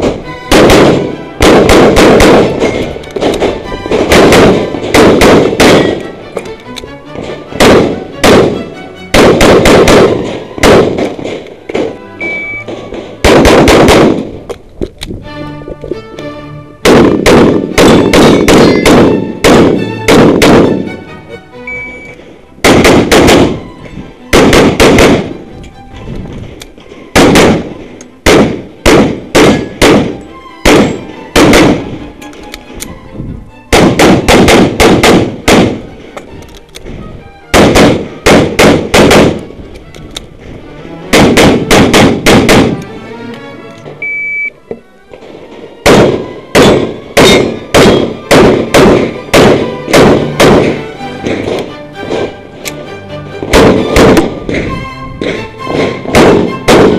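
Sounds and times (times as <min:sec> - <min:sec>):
rapid pistol shots: 0:00.0 - 0:06.0, 0:07.6 - 0:11.9, 0:13.2 - 0:14.4, 0:16.8 - 0:20.8, 0:22.6 - 0:23.6, 0:24.3 - 0:25.4, 0:27.2 - 0:31.9, 0:33.7 - 0:35.8, 0:37.5 - 0:39.4, 0:41.1 - 0:42.8, 0:45.8 - 0:50.8, 0:53.5 - 0:54.3, 0:56.1 - 0:56.9.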